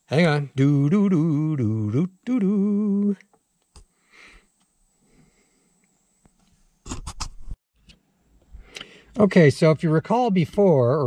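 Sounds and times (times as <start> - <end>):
man humming: 0.2 - 3.3.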